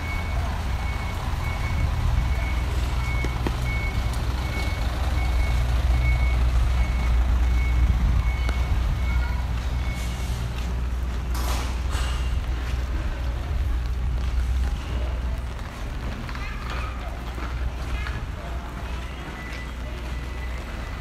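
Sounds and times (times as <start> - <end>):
reversing alarm beeping: 0.0 - 10.7, 18.9 - 21.0
heavy vehicle engine rumbling: 0.0 - 21.0.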